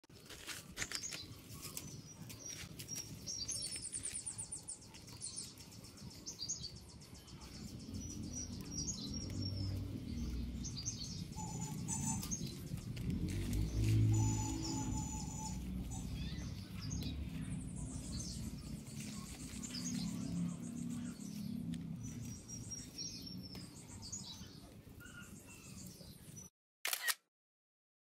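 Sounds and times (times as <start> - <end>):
small birds chirping: 0.4 - 26.5
low rumble: 7.4 - 24.0
rustling and clicking of rose canes: 12.2 - 14.1.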